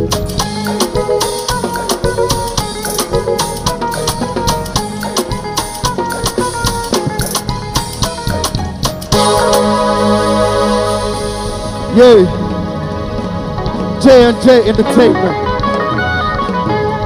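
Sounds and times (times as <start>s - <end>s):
fast drum and percussion beat: 0.0s - 12.7s
melodic instrument lines: 0.0s - 17.0s.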